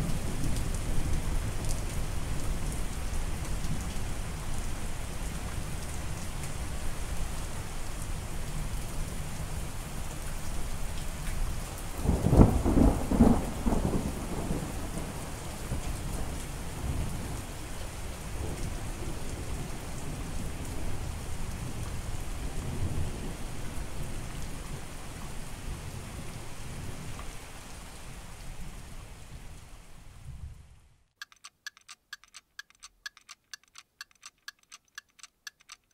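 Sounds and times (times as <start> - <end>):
rain falling on water: 0.0 - 31.0
thunder: 12.0 - 17.4.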